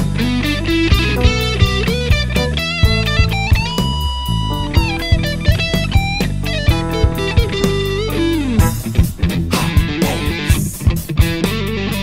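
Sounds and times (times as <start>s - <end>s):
steady drum beat: 0.0s - 11.9s
electric guitar lead line: 0.0s - 12.0s.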